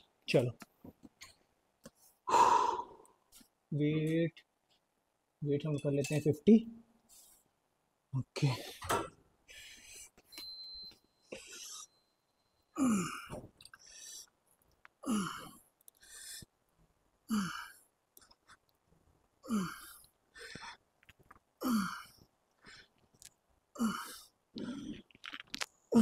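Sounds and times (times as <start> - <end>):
man grunting exhale: 2.3 - 3.0.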